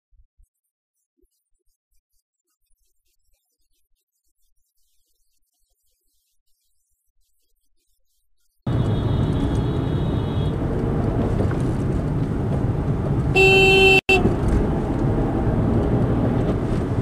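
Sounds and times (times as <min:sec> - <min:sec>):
car horn blast: 0:08.7 - 0:10.6, 0:13.3 - 0:14.4
car engine and road noise: 0:08.7 - 0:17.0.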